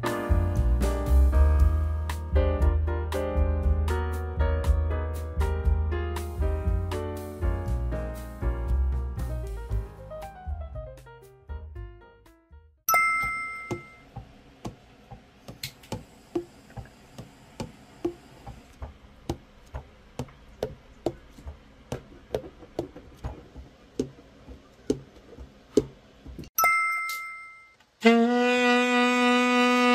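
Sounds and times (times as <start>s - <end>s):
bell-like ding: 12.9s - 14.0s, 26.6s - 27.8s.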